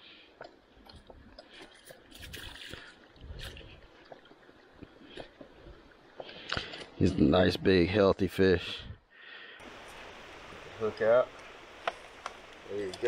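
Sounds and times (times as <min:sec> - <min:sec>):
water splashing and dripping: 0:00.4 - 0:07.0, 0:09.6 - 0:13.0.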